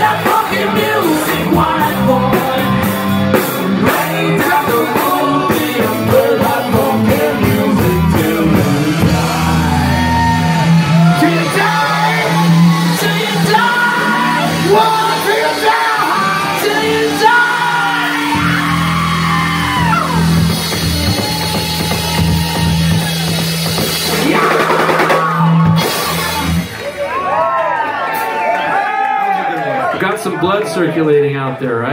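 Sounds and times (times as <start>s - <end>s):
person singing: 0.0s - 22.4s
electric bass: 0.0s - 27.0s
drum kit: 0.0s - 27.2s
electric guitar: 0.0s - 27.2s.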